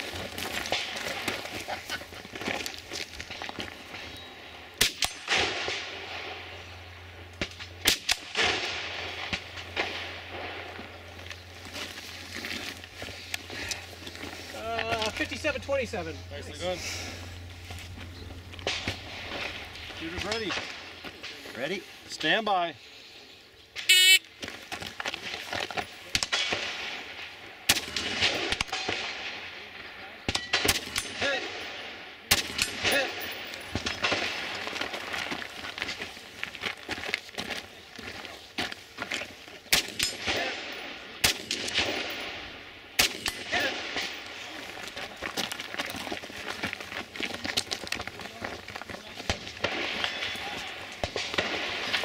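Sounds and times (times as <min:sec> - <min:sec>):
rifle shots with rolling echo: 0:04.8 - 0:11.2, 0:26.1 - 0:35.0, 0:39.7 - 0:44.7, 0:49.2 - 0:52.0
shot timer beep: 0:23.9 - 0:24.2.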